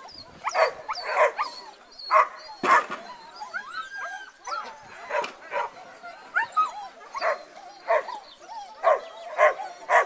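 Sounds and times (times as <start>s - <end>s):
dog yelping: 0.0s - 10.0s
dog barking: 0.5s - 1.5s, 2.1s - 2.9s, 8.8s - 10.0s.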